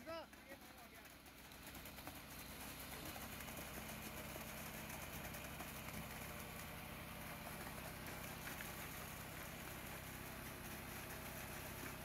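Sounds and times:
pump engine droning: 0:00.0 - 0:12.0.

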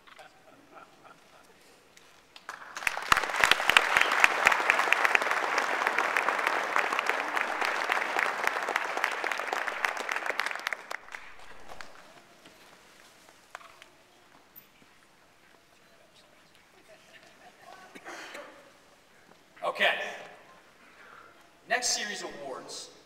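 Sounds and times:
audience applause: 0:02.4 - 0:12.4.

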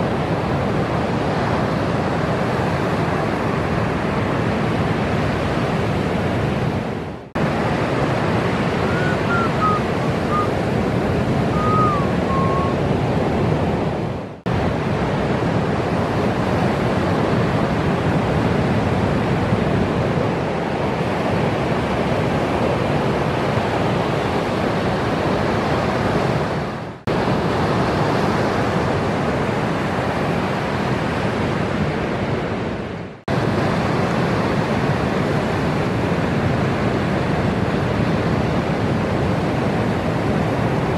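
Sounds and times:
ocean waves breaking: 0:00.0 - 0:40.9
faint high chirps: 0:11.6 - 0:12.8.

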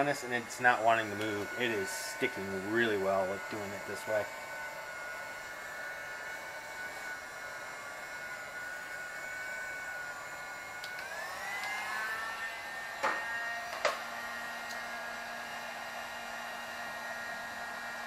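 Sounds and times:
heat gun fan whine: 0:00.0 - 0:18.0
heat gun knocking on floor: 0:13.0 - 0:14.0.

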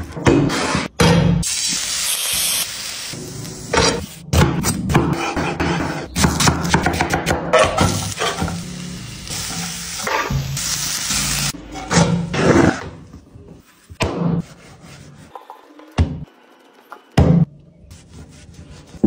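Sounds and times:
chicken sizzling in a pan: 0:08.0 - 0:11.6.

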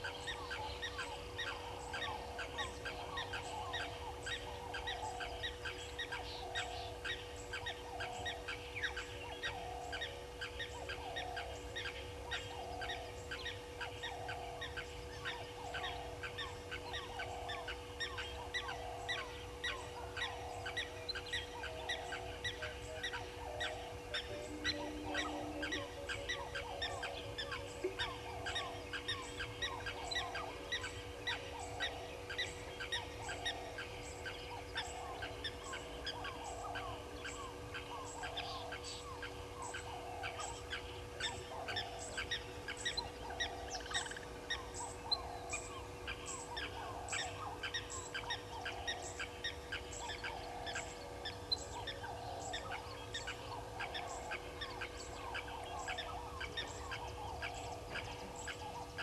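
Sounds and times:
constant low hum: 0:00.0 - 0:59.0
falling animal call: 0:24.2 - 0:26.8.

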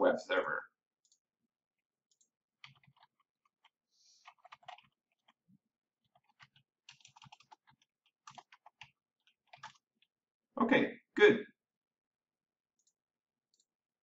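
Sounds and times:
typing on a computer keyboard: 0:02.1 - 0:10.1.

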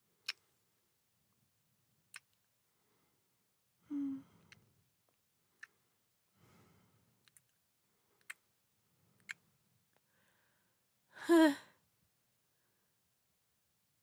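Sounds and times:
soft breath: 0:02.6 - 0:04.8, 0:05.4 - 0:07.2, 0:07.8 - 0:11.8
woman sighing: 0:03.8 - 0:04.4, 0:11.1 - 0:11.8.

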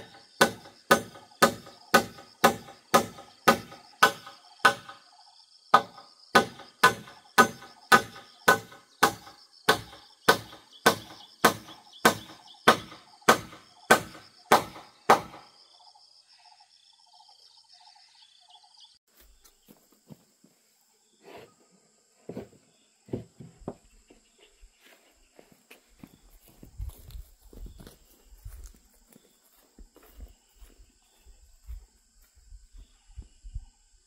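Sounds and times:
hammering on wood: 0:00.0 - 0:05.0, 0:05.7 - 0:15.4
insects droning: 0:00.0 - 0:34.0.

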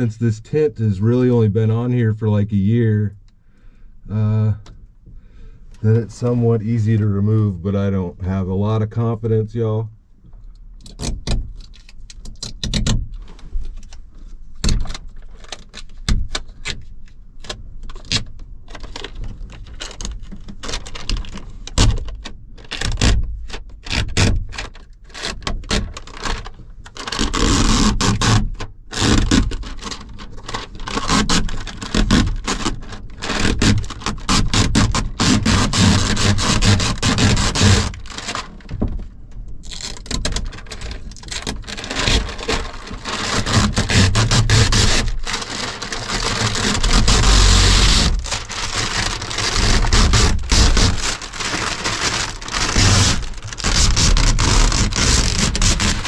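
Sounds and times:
plastic film crackling and scraping: 0:11.0 - 0:56.0
plastic film ripping: 0:14.6 - 0:16.8, 0:17.4 - 0:38.7, 0:39.6 - 0:56.0.

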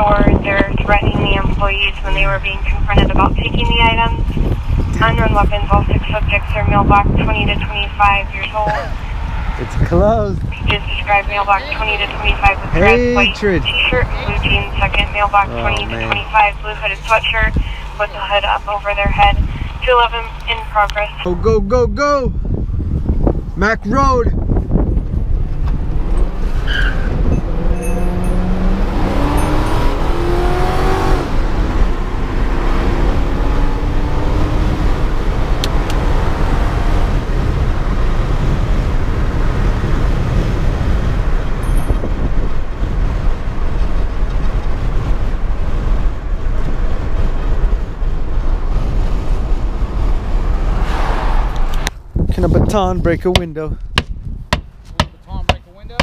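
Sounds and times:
car engine revving: 0:00.0 - 0:21.2, 0:24.7 - 0:41.6
road and wind noise: 0:00.0 - 0:56.0.

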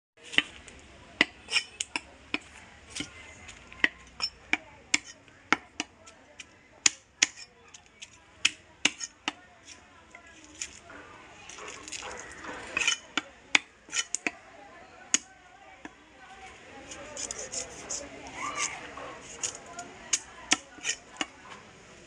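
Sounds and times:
cleaver scraping fish scales: 0:01.4 - 0:05.2, 0:08.8 - 0:13.2, 0:13.8 - 0:14.3, 0:16.7 - 0:21.3.

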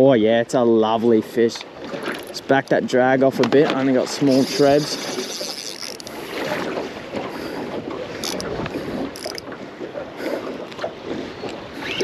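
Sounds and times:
water sloshing around boat: 0:00.0 - 0:12.0
wind buffeting microphone: 0:03.3 - 0:12.0.

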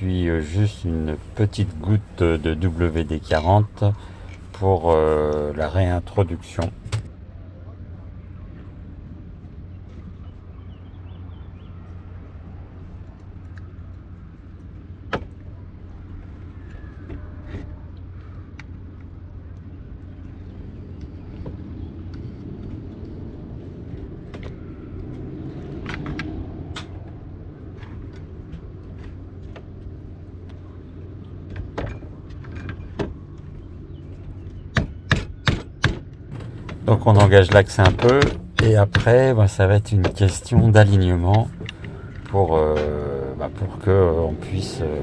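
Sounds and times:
steady low hum: 0:00.0 - 0:45.0
rope clutch clicks and knocks: 0:34.2 - 0:40.7.

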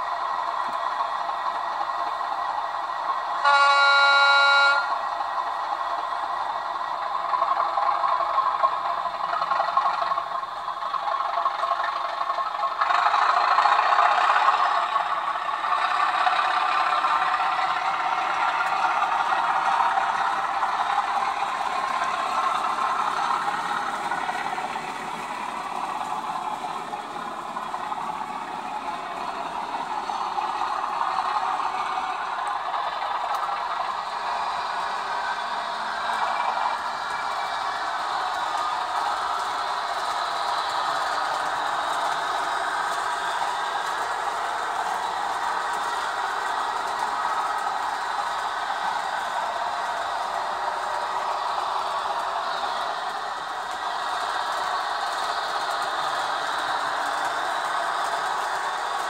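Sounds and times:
model train running on track: 0:00.0 - 0:59.0
model train horn: 0:03.3 - 0:05.2.

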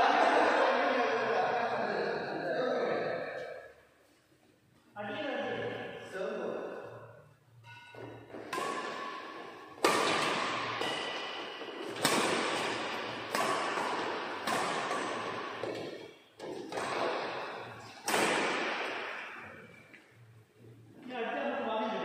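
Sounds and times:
rackets hitting shuttlecock: 0:07.6 - 0:20.2.

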